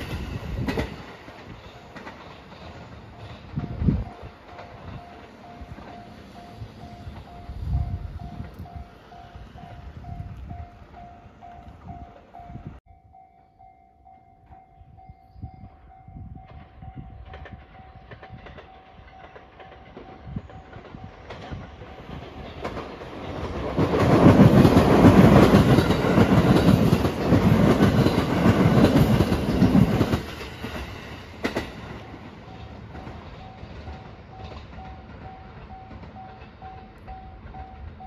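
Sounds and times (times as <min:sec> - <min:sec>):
wheels clattering over rail joints: 0:00.0 - 0:07.4, 0:17.2 - 0:38.0
electric train passing: 0:00.0 - 0:38.0.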